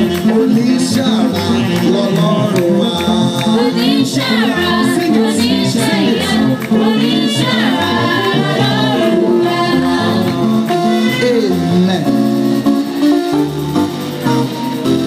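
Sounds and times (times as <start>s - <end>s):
group singing gospel song: 0.0s - 12.0s
instrumental backing: 0.0s - 15.0s.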